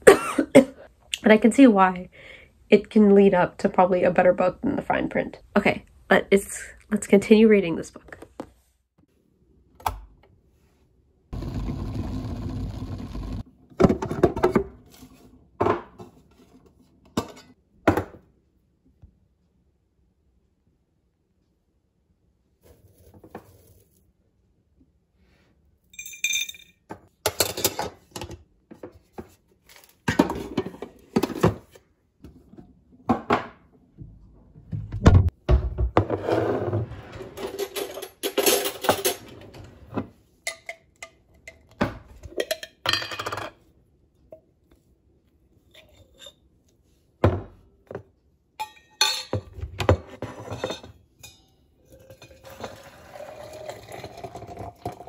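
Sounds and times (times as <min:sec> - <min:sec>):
kitchenware clinking and scraping: 0:13.8 - 0:17.6, 0:26.0 - 0:31.8, 0:36.0 - 0:43.7, 0:45.6 - 0:46.5, 0:48.6 - 0:55.0.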